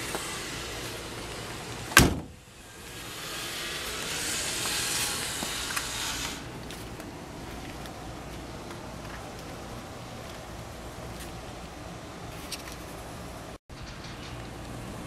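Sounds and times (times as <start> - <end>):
door slamming: 1.9 - 2.4.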